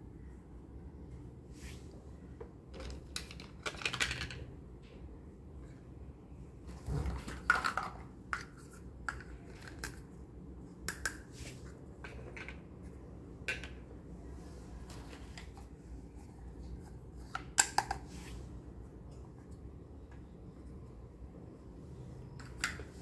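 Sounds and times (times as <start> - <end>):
plastic toy cups clicking: 2.7 - 4.5, 7.2 - 10.2, 10.8 - 11.3, 12.0 - 12.7, 13.4 - 13.9, 17.2 - 18.1, 22.4 - 23.0.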